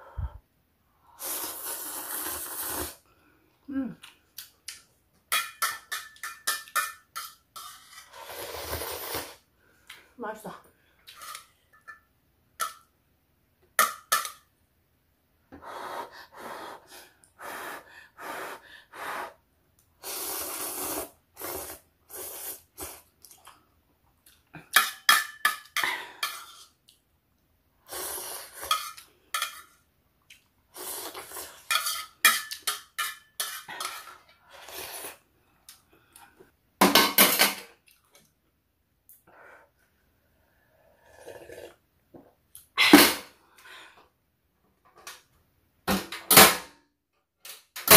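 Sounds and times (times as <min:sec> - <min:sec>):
slurping and chewing noodles: 0:01.2 - 0:03.0, 0:20.0 - 0:23.6, 0:30.3 - 0:31.7, 0:40.7 - 0:41.8.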